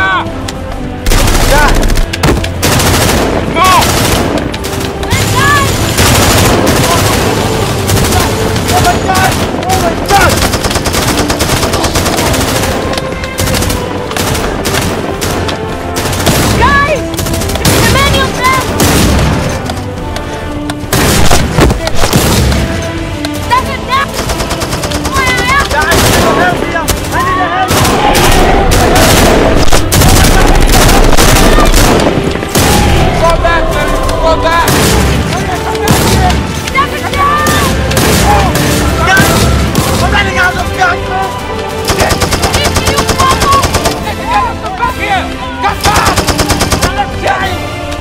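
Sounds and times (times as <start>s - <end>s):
rapid automatic rifle fire: 1.1s - 19.4s, 24.1s - 33.0s, 41.9s - 44.0s, 45.8s - 47.0s.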